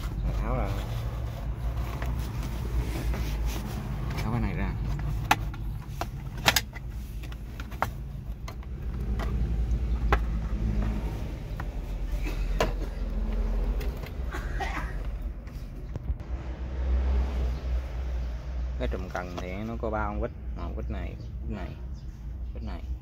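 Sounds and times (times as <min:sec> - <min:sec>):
hard plastic clicks and knocks: 0:04.9 - 0:11.8.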